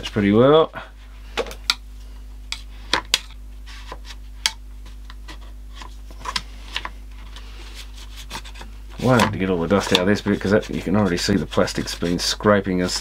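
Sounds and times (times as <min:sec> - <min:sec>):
cloth rubbing plastic: 0:07.4 - 0:13.0.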